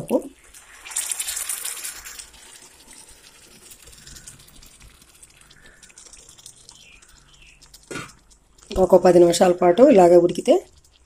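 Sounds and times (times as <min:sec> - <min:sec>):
curry sizzling: 0:00.0 - 0:11.0
water hissing in hot oil: 0:00.0 - 0:11.0.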